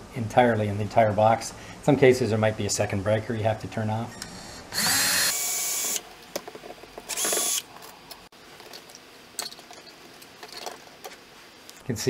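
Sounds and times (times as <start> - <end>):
cordless drill spinning: 4.7 - 6.0, 7.1 - 7.7.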